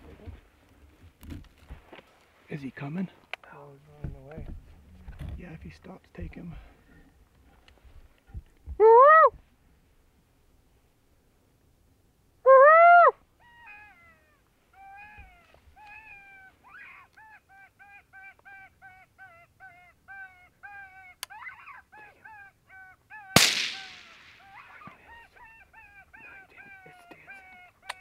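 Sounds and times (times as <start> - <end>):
rising and falling pitched call: 12.5 - 17.1, 19.6 - 28.0
rifle shot with echo: 23.4 - 24.6.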